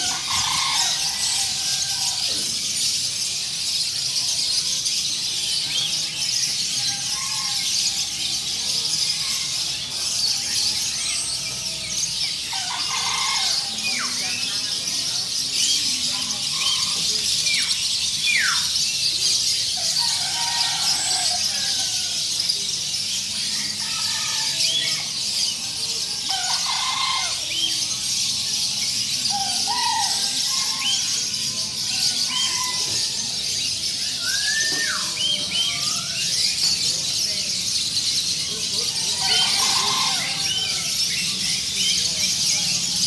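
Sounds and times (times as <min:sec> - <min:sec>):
songbirds calling: 0:00.0 - 0:43.0.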